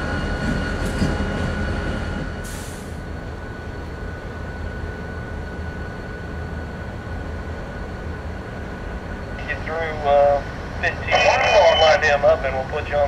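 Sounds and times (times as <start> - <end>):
faint high whine: 10.8 - 12.4.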